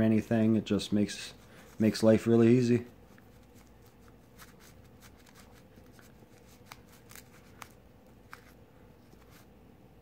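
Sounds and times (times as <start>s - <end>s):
paper towel scratching on metal: 3.1s - 7.7s.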